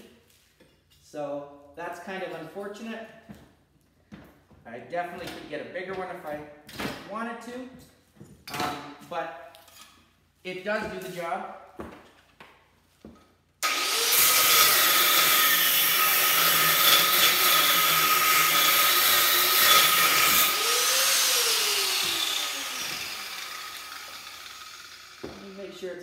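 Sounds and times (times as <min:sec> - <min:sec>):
angle grinder cutting metal: 0:13.6 - 0:26.0.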